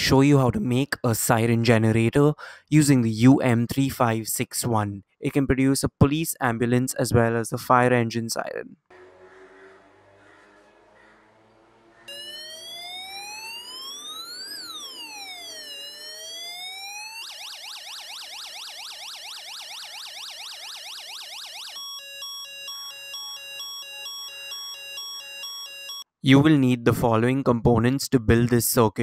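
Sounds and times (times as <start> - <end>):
electronic siren from small speaker: 8.9 - 26.1.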